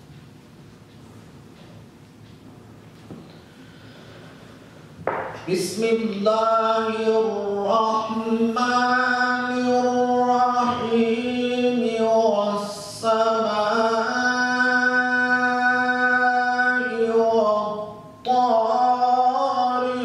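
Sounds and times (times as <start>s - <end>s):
man reciting melodically: 5.4s - 20.0s.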